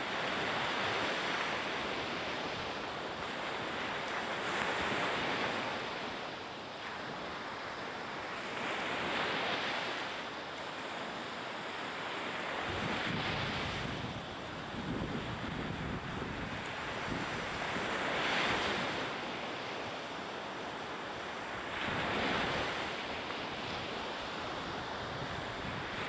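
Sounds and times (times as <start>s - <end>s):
sea noise: 0.0s - 26.0s
rushing wind: 12.3s - 19.5s, 21.3s - 26.0s.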